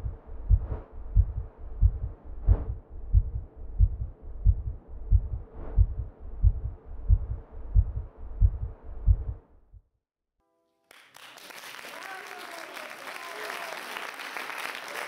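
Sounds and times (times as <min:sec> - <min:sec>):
deep muffled heartbeat thumping: 0:00.0 - 0:09.9.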